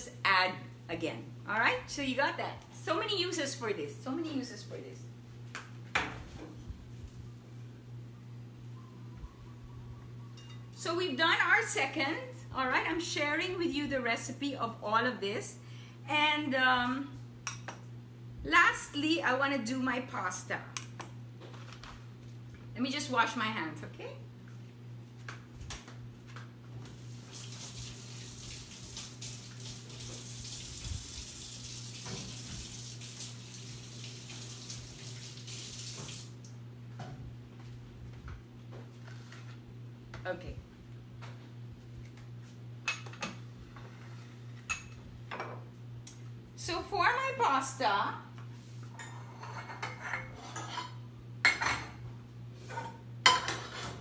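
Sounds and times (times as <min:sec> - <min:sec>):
faucet running over hands: 0:27.1 - 0:36.4
steady low hum: 0:36.4 - 0:54.0.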